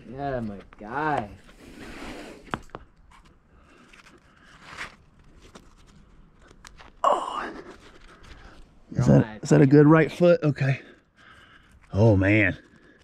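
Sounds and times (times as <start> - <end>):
person gasping oh: 7.0 - 7.8
person breathing: 10.8 - 11.9, 12.6 - 13.0.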